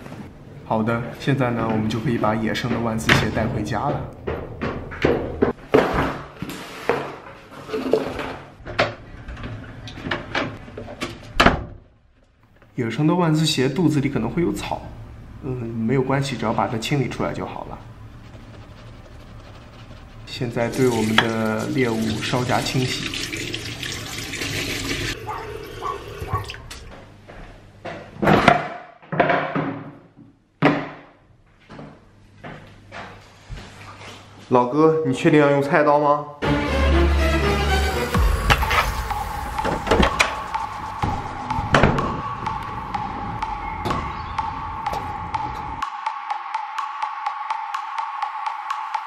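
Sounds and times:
shoe being scrubbed: 17.2s - 22.0s
tap water running into sink: 20.7s - 26.8s.

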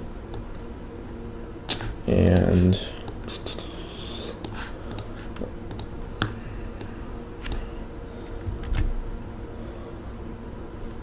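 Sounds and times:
faint steady hum: 0.0s - 11.0s
keyboard and mouse clicking: 4.4s - 7.6s.

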